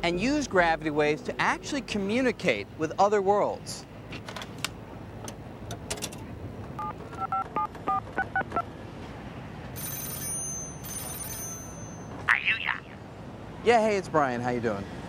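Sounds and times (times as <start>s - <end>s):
touch-tone keypad beeps: 6.8s - 8.0s
telephone ringing tone: 6.8s - 8.6s, 9.8s - 12.2s.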